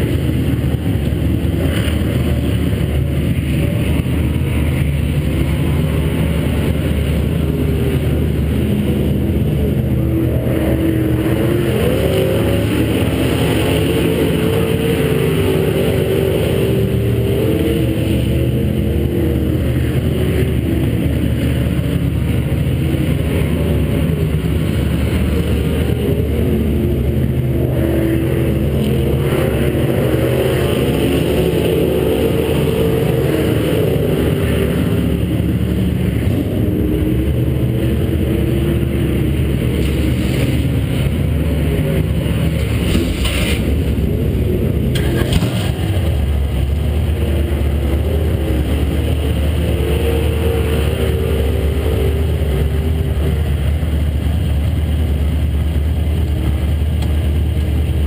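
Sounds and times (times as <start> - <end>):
race car engine idling: 31.7 - 58.0.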